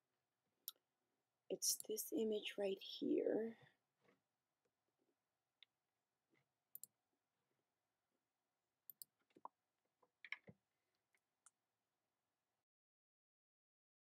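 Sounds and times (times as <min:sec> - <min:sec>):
computer mouse clicks: 0:06.7 - 0:06.9, 0:08.9 - 0:09.1.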